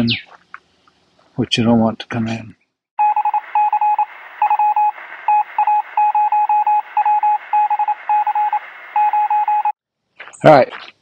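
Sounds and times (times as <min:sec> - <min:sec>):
morse code beeping: 0:03.0 - 0:09.8
steady radio hiss: 0:03.2 - 0:09.1.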